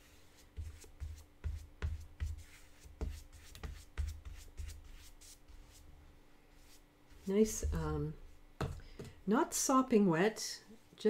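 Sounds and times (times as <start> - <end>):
brush stroking on paper: 0.0 - 8.2.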